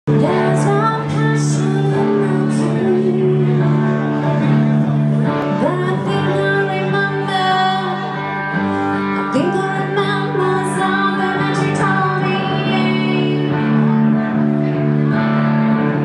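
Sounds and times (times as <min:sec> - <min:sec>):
woman singing: 0:00.1 - 0:04.3, 0:05.4 - 0:13.9
live band playing: 0:00.1 - 0:16.0.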